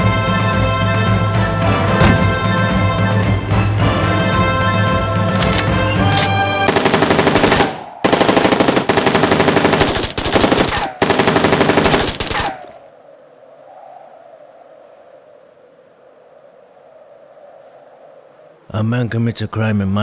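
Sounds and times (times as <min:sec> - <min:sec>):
music: 0:00.0 - 0:06.7
submachine gun bursts: 0:05.4 - 0:12.8
gunfire echo: 0:05.4 - 0:12.9.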